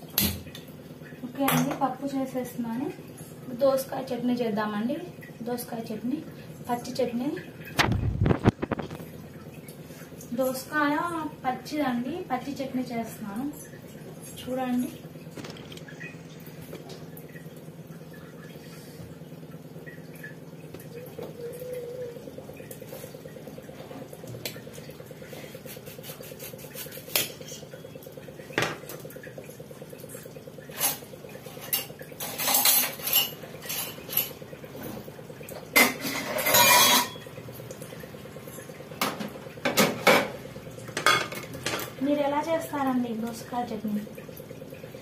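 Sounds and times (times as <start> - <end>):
steel dishes and cutlery clinking: 35.8 - 37.2.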